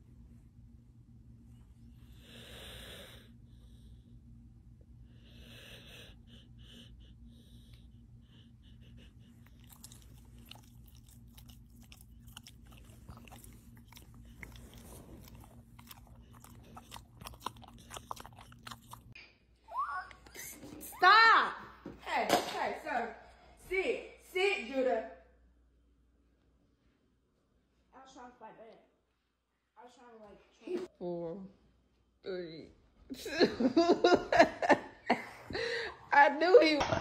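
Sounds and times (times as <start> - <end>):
faint low hum: 0.0 - 37.0
dog breathing noisily: 5.1 - 19.2
dog chewing a treat: 9.4 - 19.1.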